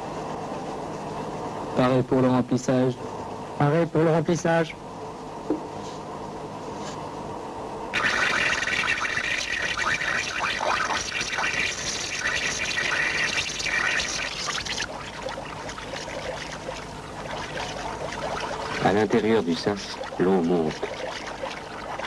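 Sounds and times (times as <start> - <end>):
water rushing in: 8.0 - 22.0.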